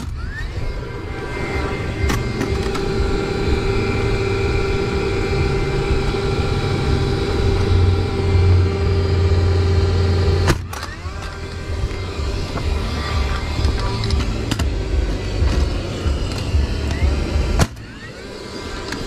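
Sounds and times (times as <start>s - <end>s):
cordless drill driving screw into wood: 10.4s - 18.1s.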